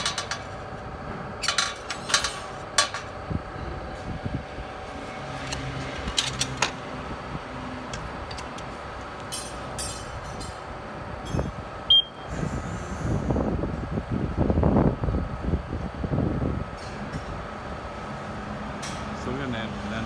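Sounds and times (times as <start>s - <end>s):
rough mechanical noise: 0.0s - 15.3s
steady machine hum: 0.0s - 20.0s.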